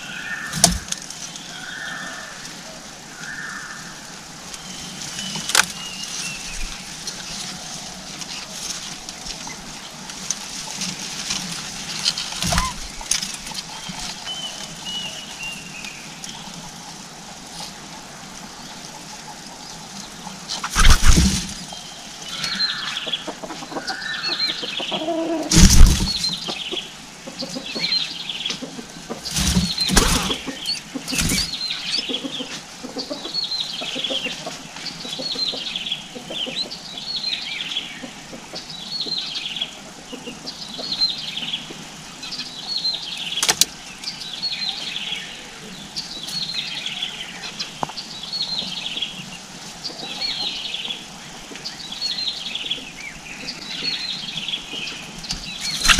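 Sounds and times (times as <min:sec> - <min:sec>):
bird chirping calls: 0:12.1 - 0:16.6, 0:20.0 - 0:55.9
loud thumps: 0:20.7 - 0:21.6, 0:25.5 - 0:26.4, 0:29.3 - 0:30.5, 0:31.1 - 0:31.5.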